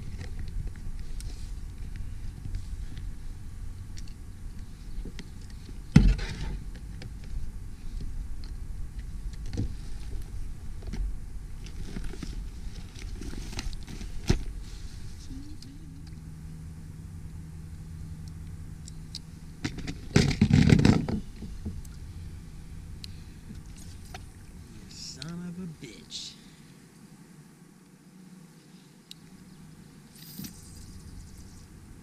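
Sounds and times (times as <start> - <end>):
low rumble: 0.0 - 25.9
knocks and scrapes on kayak: 4.9 - 7.1, 19.6 - 21.8.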